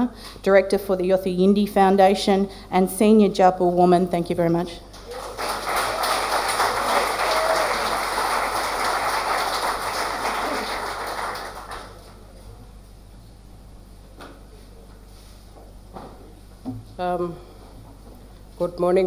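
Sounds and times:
audience applauding: 0:05.0 - 0:12.2.

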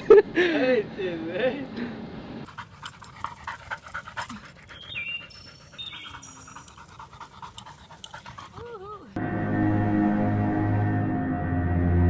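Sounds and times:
dog panting: 0:02.5 - 0:09.2.

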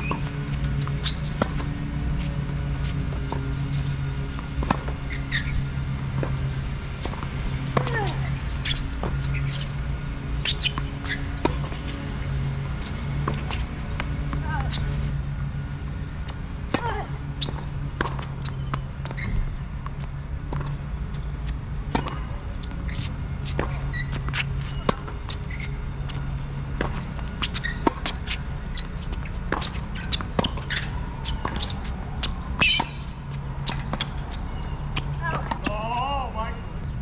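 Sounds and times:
tennis balls struck and bouncing: 0:00.0 - 0:15.1, 0:16.2 - 0:36.9.

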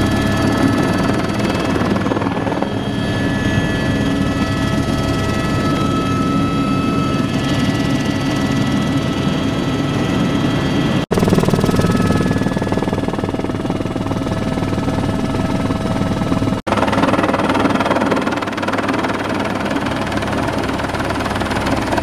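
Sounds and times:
helicopter rotor and engine noise: 0:00.0 - 0:22.0
high turbine whine: 0:00.0 - 0:22.0.

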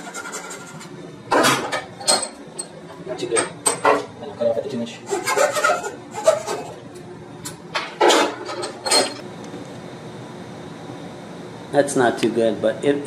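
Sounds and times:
hacksaw rasping through wood: 0:05.1 - 0:06.7.

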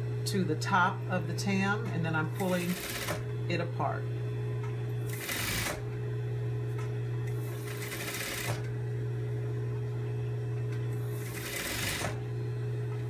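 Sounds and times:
sewing machine motor humming: 0:01.6 - 0:03.4, 0:05.0 - 0:06.0, 0:07.2 - 0:08.8, 0:10.9 - 0:12.4.

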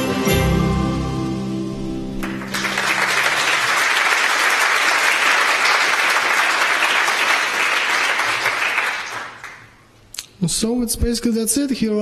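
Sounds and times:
music ringing out: 0:00.0 - 0:03.6
audience applause: 0:02.2 - 0:09.8.

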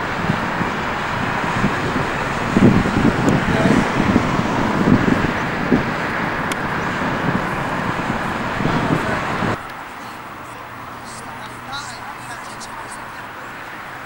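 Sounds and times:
low wind thumps: 0:00.0 - 0:09.9
wind buffeting microphone: 0:00.0 - 0:14.0.

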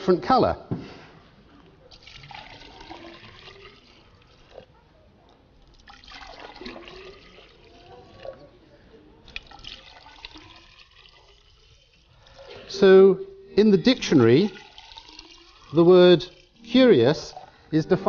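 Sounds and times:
liquid pouring and splashing: 0:01.9 - 0:04.7, 0:05.6 - 0:08.5, 0:09.2 - 0:13.0, 0:13.8 - 0:18.0.

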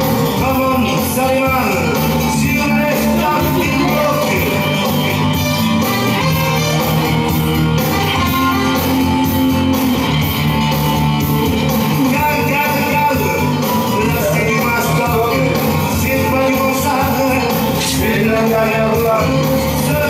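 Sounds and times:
person singing: 0:00.0 - 0:06.7, 0:11.8 - 0:20.0
guitar: 0:00.0 - 0:20.0.

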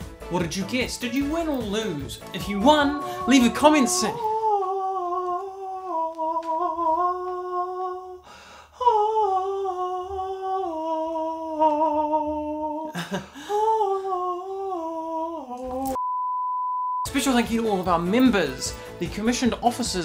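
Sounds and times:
woman humming a slow tune: 0:02.6 - 0:08.2.

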